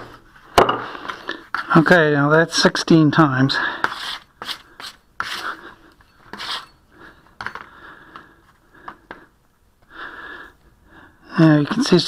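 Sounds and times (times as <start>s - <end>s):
putty knife scraping putty: 3.8s - 6.8s.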